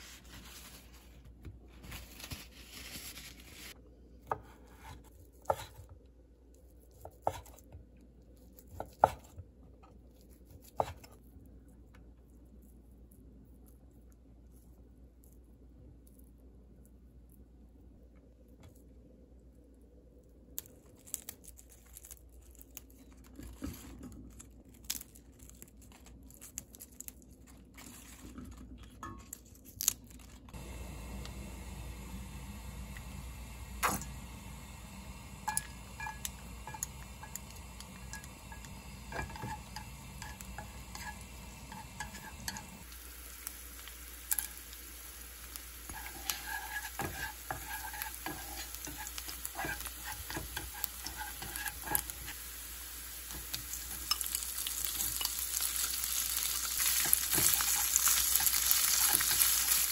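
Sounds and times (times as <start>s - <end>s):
garlic and chilies sizzling: 0.0s - 3.8s, 21.0s - 59.9s
oil frying hiss: 30.5s - 59.9s.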